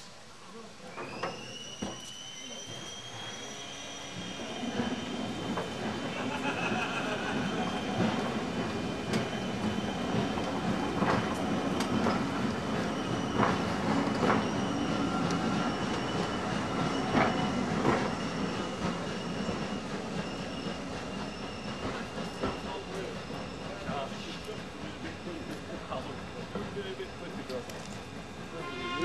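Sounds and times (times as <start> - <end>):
low train rumble: 0.0 - 29.0
high wheel squeal: 1.0 - 6.2, 12.8 - 23.8
train wheels clicking over rail joints: 4.8 - 28.4.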